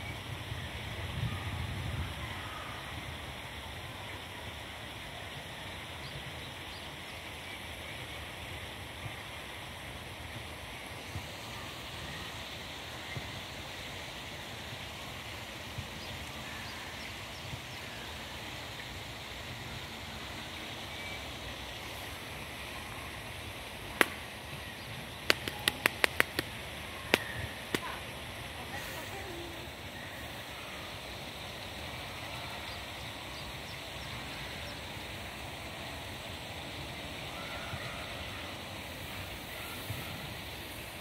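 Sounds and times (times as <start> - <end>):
outdoor background hiss: 0.0 - 41.0
sharp clicks: 25.3 - 27.9.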